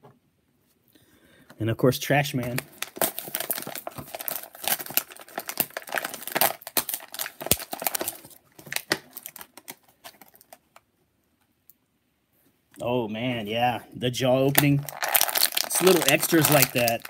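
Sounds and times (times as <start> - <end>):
packaging crinkling and rustling: 2.4 - 10.8, 14.4 - 17.0.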